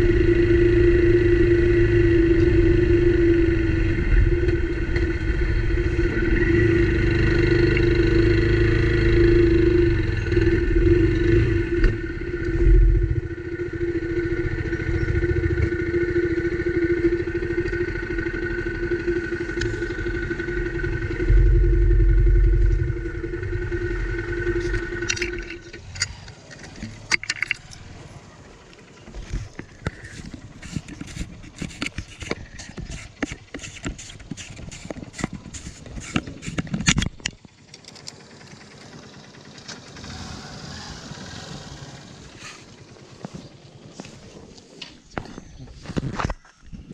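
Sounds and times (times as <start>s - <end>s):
motorcycle engine idling: 0.0s - 45.8s
clicks and rattles: 24.6s - 27.9s, 29.2s - 38.2s.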